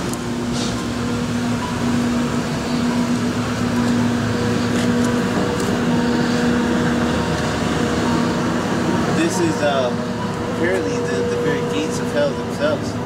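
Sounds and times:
low droning hum: 0.0 - 13.0
faint higher tones: 1.0 - 13.0.

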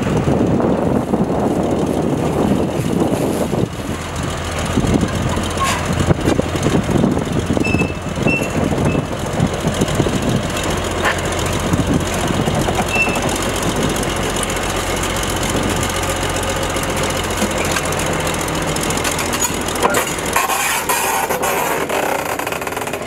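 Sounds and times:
diesel locomotive engine rumbling: 0.0 - 23.0
high squeaks: 7.6 - 9.1, 12.8 - 13.4, 19.2 - 23.0
running gear rattling and knocking: 10.0 - 23.0.

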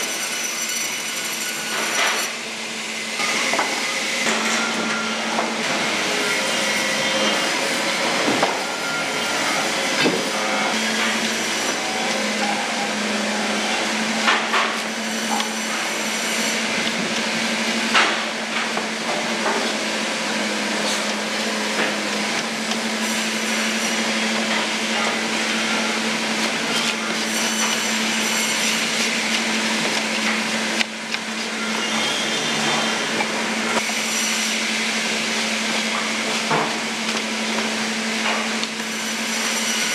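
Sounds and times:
factory machinery humming and hissing: 0.0 - 39.9.

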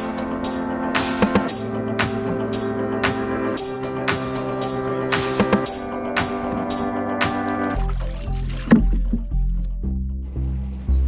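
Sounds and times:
steady drum beat: 0.0 - 8.1
sustained instrumental notes: 0.0 - 10.4.

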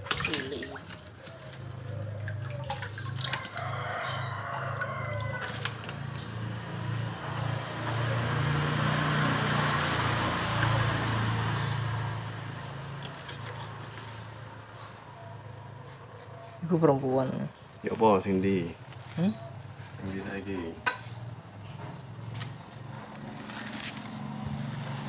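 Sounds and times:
water sloshing and splashing: 0.0 - 14.6.

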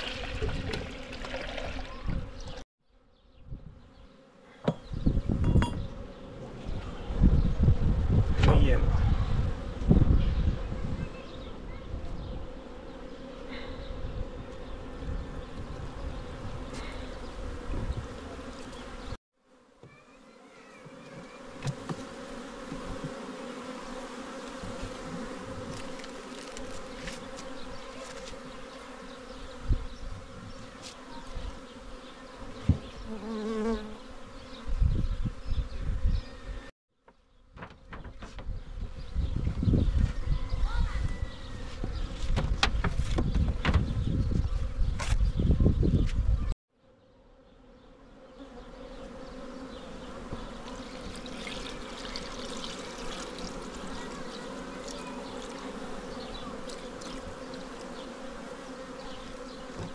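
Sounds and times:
bees buzzing: 9.3 - 36.7, 46.8 - 59.9.

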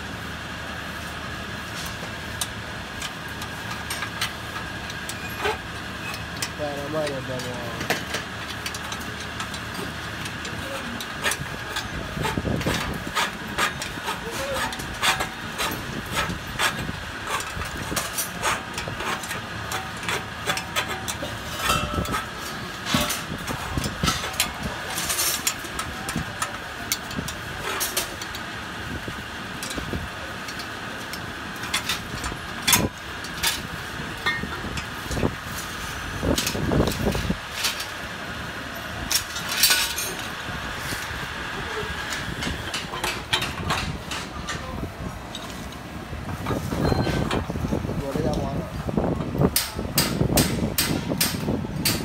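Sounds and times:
steady mechanical hum: 0.0 - 52.0
spanner clicking on bolts: 2.4 - 28.5, 29.4 - 35.6, 49.5 - 52.0.

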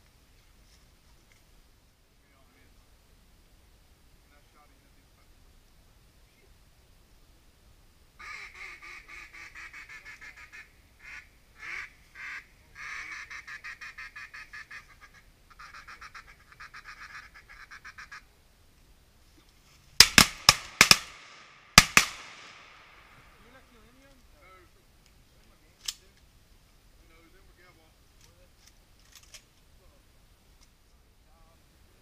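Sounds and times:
duck call quacking: 8.2 - 18.3
shotgun shots: 20.0 - 23.3.

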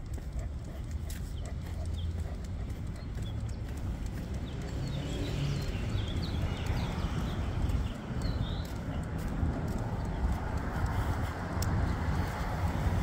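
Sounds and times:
footsteps on concrete: 0.0 - 13.0
wind rumble: 3.4 - 13.0.

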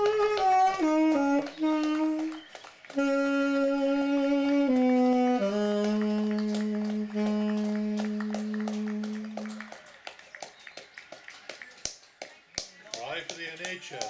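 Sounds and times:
saxophone playing held notes: 0.0 - 9.7.

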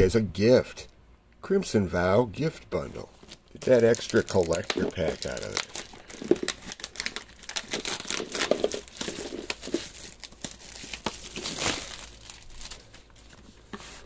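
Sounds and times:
plastic wrap crinkling and tearing: 3.2 - 14.0.

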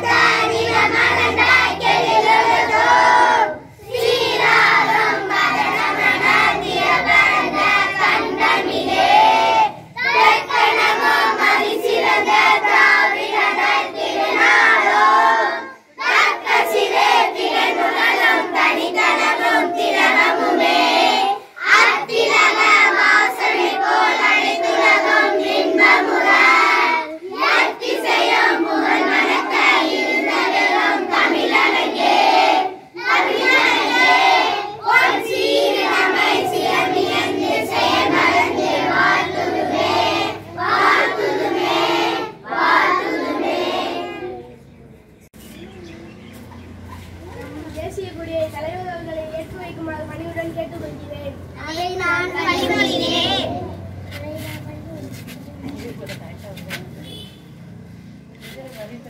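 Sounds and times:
children singing in unison: 0.0 - 44.6, 52.2 - 53.8.

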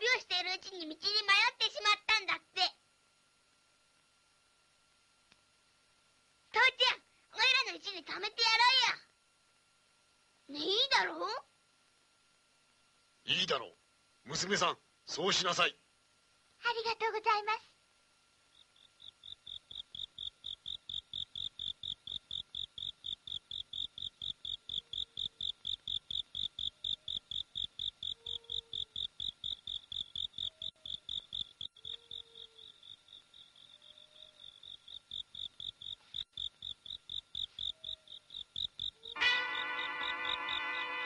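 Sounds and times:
crickets chirping: 18.2 - 41.0
music with brass: 39.2 - 41.0.

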